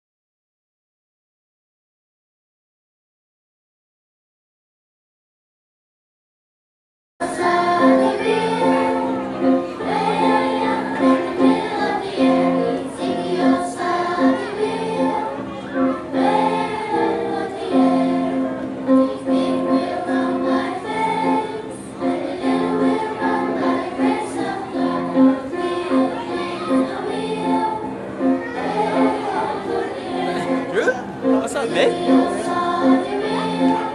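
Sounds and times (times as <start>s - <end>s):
children's choir singing: 7.2s - 33.9s
electric keyboard: 7.2s - 33.9s.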